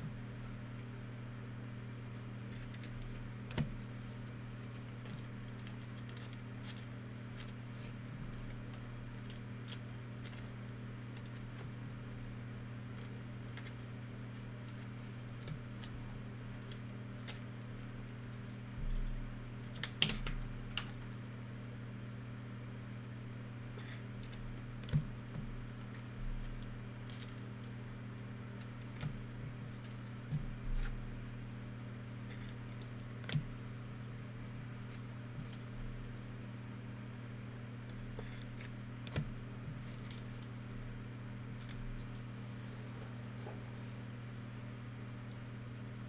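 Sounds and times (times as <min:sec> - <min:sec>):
steady low hum: 0:00.0 - 0:46.0
trading cards clicking and rustling: 0:02.4 - 0:11.7, 0:25.9 - 0:27.8.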